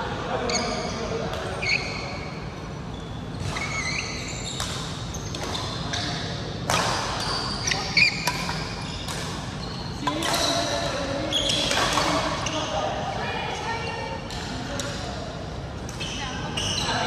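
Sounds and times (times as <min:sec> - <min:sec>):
shoes squeaking on court floor: 0:00.4 - 0:13.0, 0:15.8 - 0:17.0
racket hitting shuttlecock: 0:04.5 - 0:12.4.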